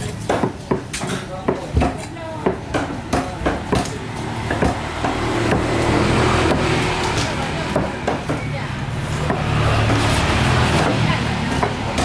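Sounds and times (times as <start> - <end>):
knife chopping on wooden block: 0.3 - 5.8.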